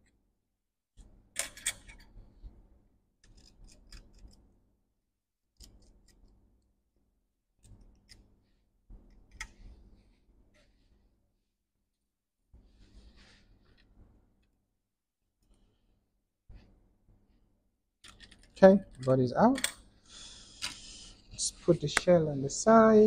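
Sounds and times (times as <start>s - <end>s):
small clicks and scrapes: 1.4s - 2.2s, 3.2s - 4.5s, 5.6s - 6.4s, 7.6s - 8.3s, 18.0s - 19.8s.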